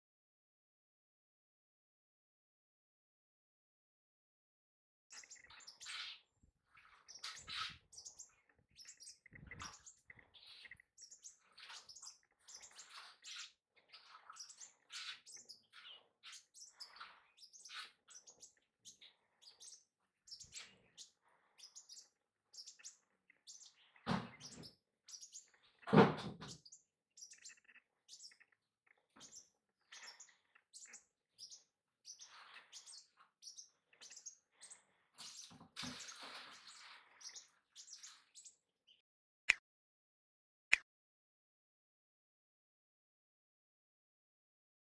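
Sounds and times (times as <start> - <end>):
sunbird chirping: 5.2 - 25.8, 26.6 - 38.6.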